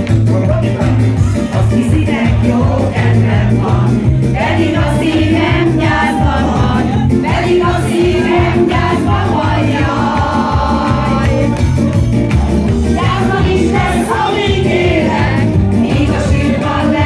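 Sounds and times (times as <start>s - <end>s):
keyboard: 0.0s - 17.0s
steady bass beat: 0.0s - 17.0s
woman singing into a microphone: 1.6s - 11.5s.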